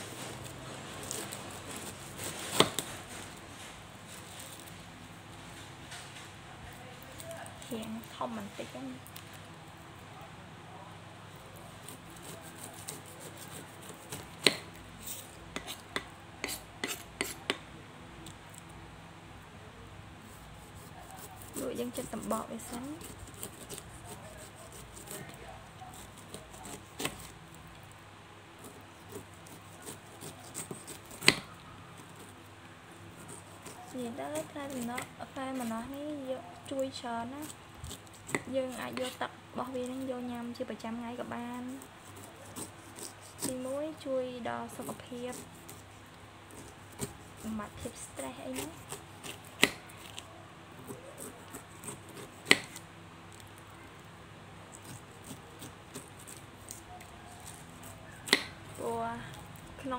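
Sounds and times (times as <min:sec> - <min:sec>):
knife cutting on wooden board: 0:00.1 - 0:02.9, 0:11.8 - 0:17.6, 0:20.3 - 0:27.3, 0:28.6 - 0:31.5, 0:41.8 - 0:43.7, 0:48.5 - 0:50.2, 0:50.8 - 0:52.8, 0:57.4 - 0:58.9.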